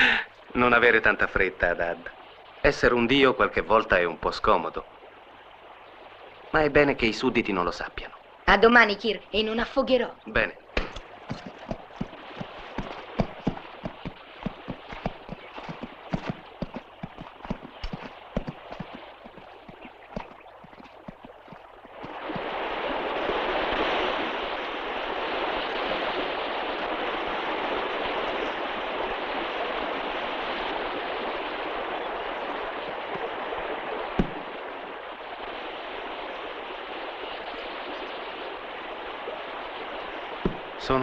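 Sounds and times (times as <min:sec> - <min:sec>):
river water rushing: 0:09.5 - 0:41.0
horse hooves clip-clopping: 0:10.9 - 0:22.5, 0:34.2 - 0:34.4, 0:40.4 - 0:40.7
sharp knock: 0:34.2 - 0:34.4, 0:40.4 - 0:40.7.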